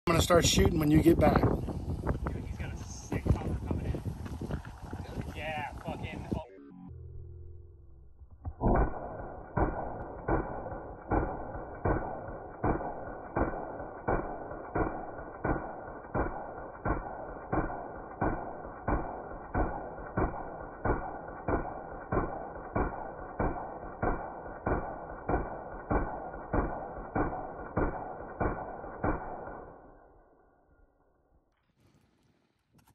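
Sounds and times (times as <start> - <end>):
slowed-down rifle shots: 8.2 - 30.4.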